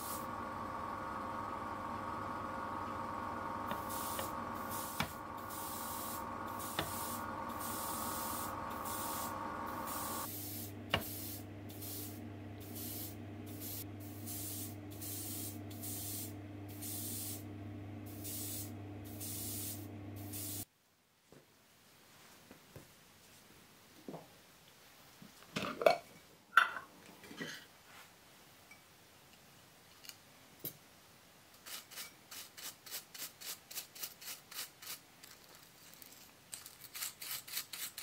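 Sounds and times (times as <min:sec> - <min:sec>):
airbrush spraying hiss: 0:00.0 - 0:00.3, 0:03.7 - 0:20.7
motor hum: 0:00.0 - 0:20.6.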